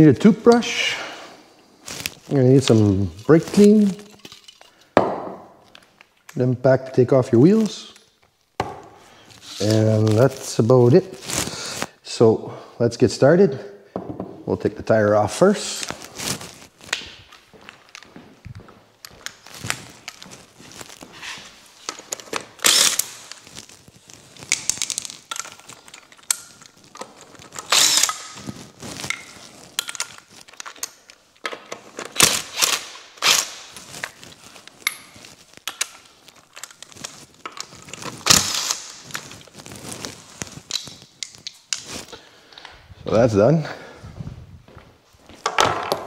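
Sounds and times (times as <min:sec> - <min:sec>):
handling knocks and clicks: 0:24.5 - 0:32.3, 0:45.4 - 0:46.0.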